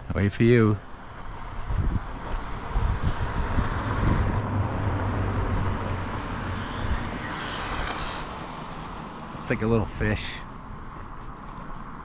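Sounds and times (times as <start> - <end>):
wind buffeting microphone: 1.2 - 8.8
vehicle driving past: 1.2 - 9.5.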